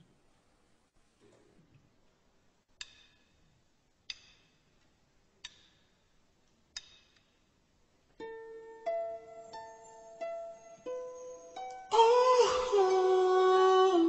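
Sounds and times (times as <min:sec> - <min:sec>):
faint room noise: 0:00.0 - 0:14.0.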